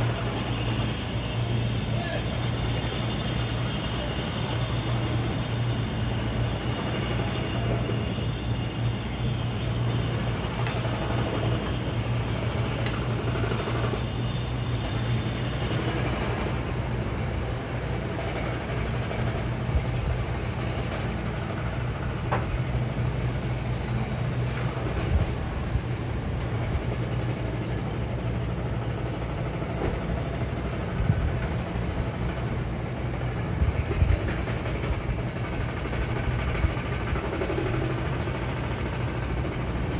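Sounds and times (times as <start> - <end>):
heavy machinery humming: 0.0 - 39.9.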